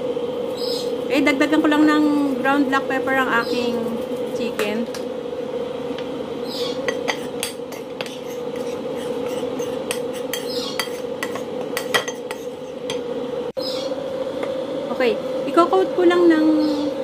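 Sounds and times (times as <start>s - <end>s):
steady hum: 0.0s - 17.0s
metal spoon scraping plate: 6.8s - 12.9s.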